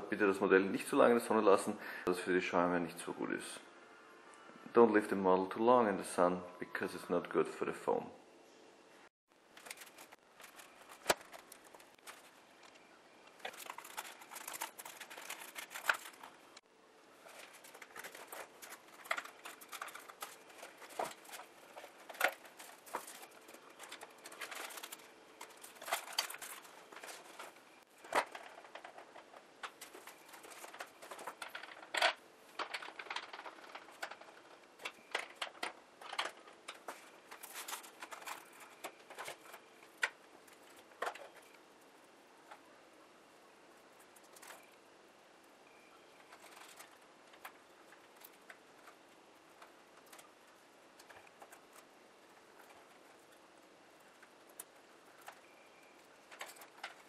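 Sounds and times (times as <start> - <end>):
plastic bags rustling: 9.4 - 41.6.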